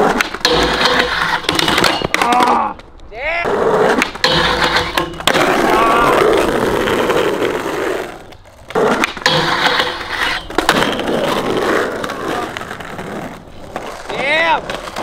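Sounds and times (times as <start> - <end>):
skateboard clacks: 0.0 - 15.0
skateboard wheels rolling: 0.0 - 15.0.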